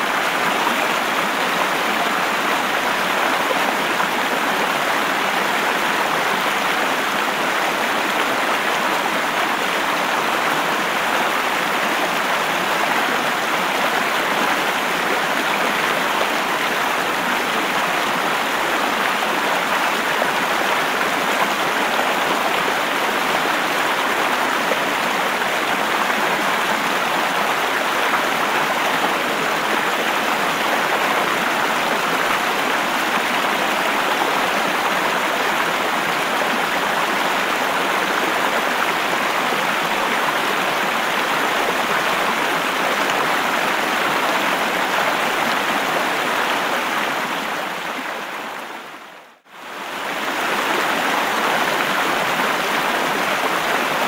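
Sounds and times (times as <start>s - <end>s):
river water rushing: 0.0s - 54.0s.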